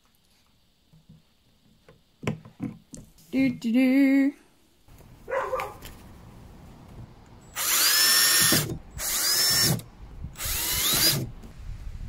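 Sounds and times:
cordless drill whining: 0:07.5 - 0:11.6.

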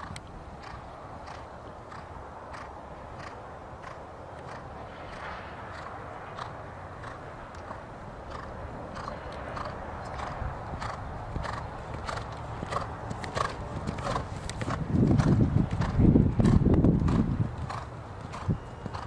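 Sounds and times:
horse hoofbeats on sand: 0:00.0 - 0:19.0.

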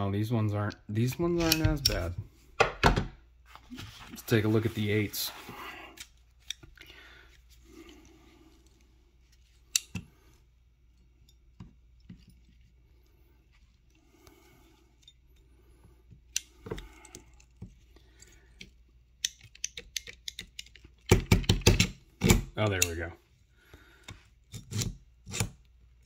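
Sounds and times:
pliers metal clicks: 0:01.4 - 0:02.1, 0:09.7 - 0:10.0.

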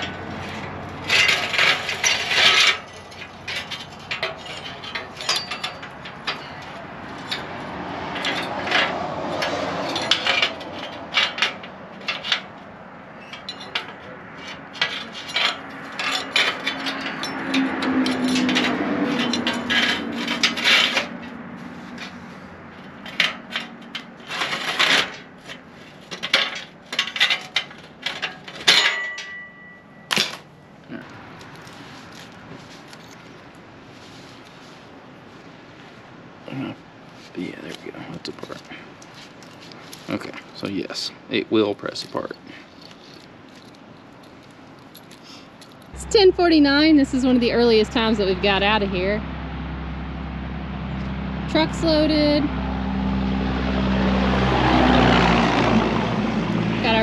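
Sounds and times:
hand tools clinking on metal: 0:00.0 - 0:12.6, 0:13.2 - 0:22.2, 0:22.8 - 0:33.3, 0:37.4 - 0:40.8.

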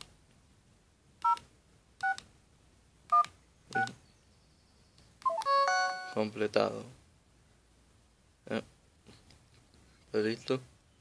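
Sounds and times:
phone keypad two-tone beeps: 0:05.3 - 0:06.2.

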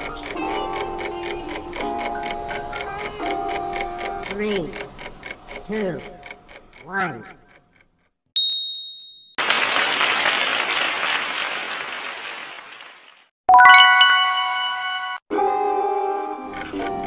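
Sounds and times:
bright ding: 0:08.4 - 0:09.4, 0:13.5 - 0:15.2
recorded applause: 0:09.4 - 0:14.0
bright ringing chime: 0:13.5 - 0:15.2.

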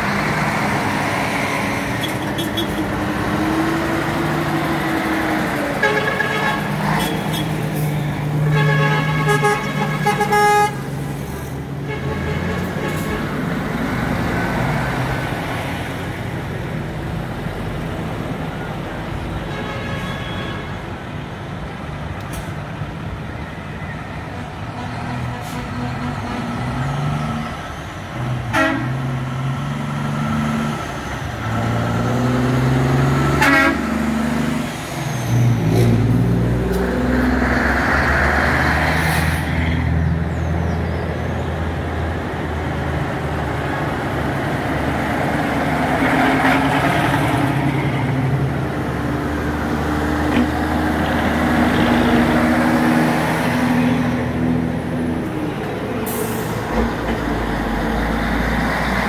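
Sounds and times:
diesel trucks passing: 0:00.0 - 0:59.0
truck horns sounding: 0:01.8 - 0:03.6, 0:04.2 - 0:13.9, 0:19.4 - 0:21.0, 0:24.2 - 0:27.6, 0:28.2 - 0:29.3, 0:31.5 - 0:36.2.

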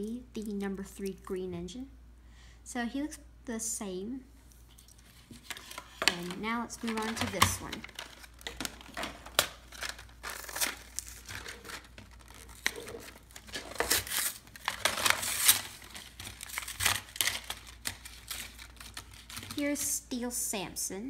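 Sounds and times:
packaging being torn and crinkled: 0:05.1 - 0:19.6.

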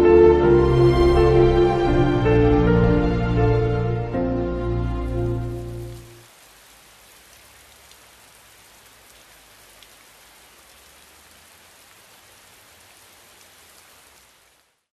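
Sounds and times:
rain pattering: 0:04.7 - 0:14.9
raindrop ticks: 0:05.8 - 0:14.7.

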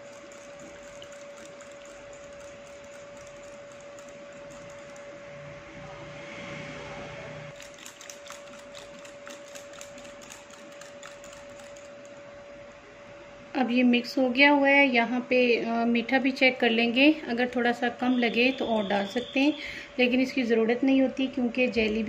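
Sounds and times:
whisk scraping glass bowl: 0:00.0 - 0:05.1, 0:07.6 - 0:12.2
steady hum: 0:00.0 - 0:06.0.

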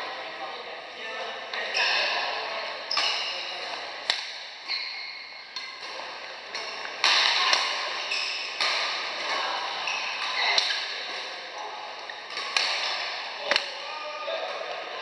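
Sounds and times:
racket hitting shuttlecock: 0:03.0 - 0:04.4, 0:05.6 - 0:09.4, 0:12.3 - 0:13.8.

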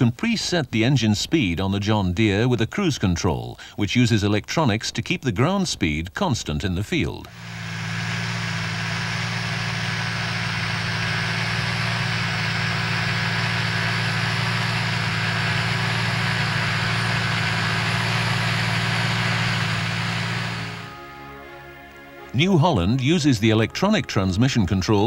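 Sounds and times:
tractor diesel engine running: 0:07.2 - 0:22.4.

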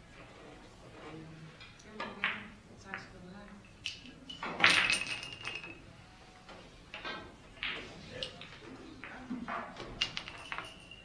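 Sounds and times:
billiard balls clicking: 0:01.8 - 0:05.9, 0:06.9 - 0:11.0.

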